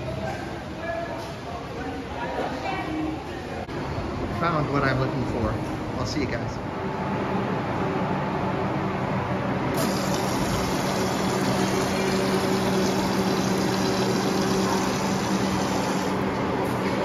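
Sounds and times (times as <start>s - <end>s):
urinal flushing water rushing: 9.8s - 16.4s.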